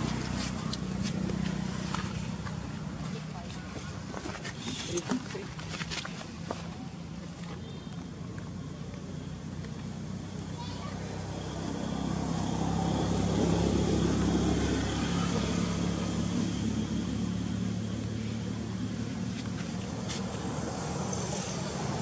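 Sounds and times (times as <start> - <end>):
motor vehicle engine hum: 0.0 - 22.0.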